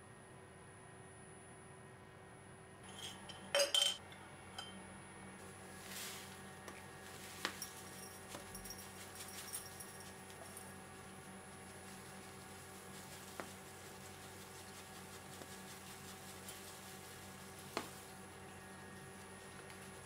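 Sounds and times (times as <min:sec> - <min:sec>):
ceramic clinks: 0:02.9 - 0:04.0, 0:04.6 - 0:04.8
paper bag rustle: 0:05.4 - 0:18.3
tea leaves pattering into cup: 0:05.7 - 0:20.0.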